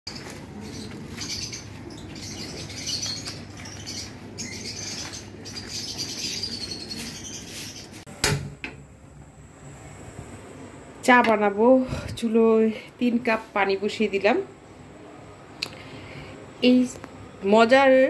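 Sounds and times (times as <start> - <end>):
small birds chirping: 0.1 - 8.0
sharp knock: 8.2 - 8.8.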